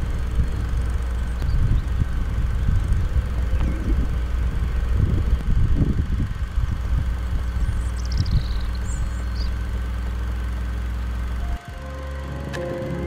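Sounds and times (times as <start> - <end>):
low rumble: 0.0 - 13.0
small bird trilling: 6.6 - 9.6.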